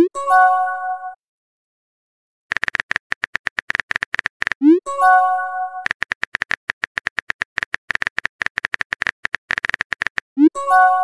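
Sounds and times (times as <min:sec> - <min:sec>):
keyboard typing clicks: 0:02.5 - 0:04.7, 0:05.8 - 0:10.4.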